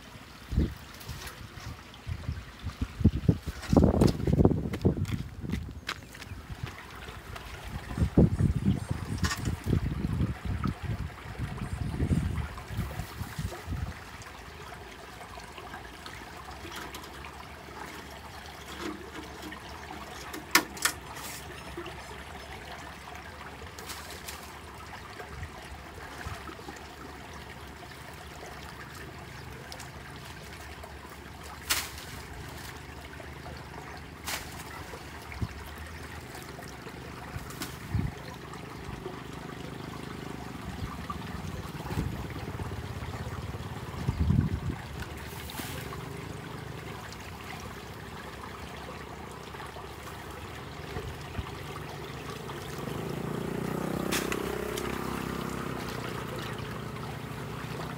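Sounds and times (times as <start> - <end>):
muddy water trickling: 0.0 - 57.9
branches knocking and splashing: 3.3 - 7.5, 9.1 - 9.9, 18.6 - 21.7, 23.7 - 24.8, 29.6 - 33.1, 34.0 - 35.5, 36.2 - 38.2, 43.7 - 46.2, 52.2 - 56.9.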